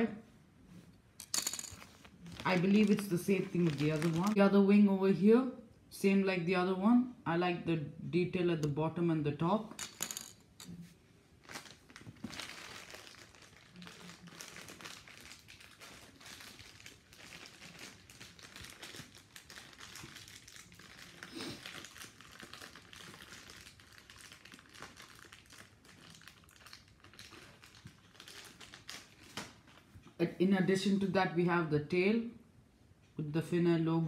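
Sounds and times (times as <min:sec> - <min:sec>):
plastic packaging crinkling: 0:01.3 - 0:04.4, 0:11.4 - 0:29.9.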